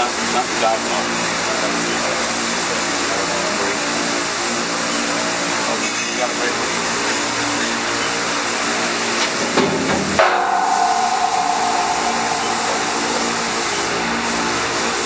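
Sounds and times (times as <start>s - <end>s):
steady machine whine: 10.2s - 15.0s.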